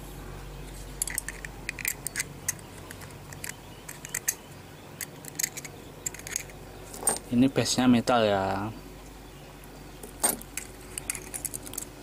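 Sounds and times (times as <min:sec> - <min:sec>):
light clicks and scrapes: 0:00.6 - 0:07.3, 0:10.0 - 0:11.9.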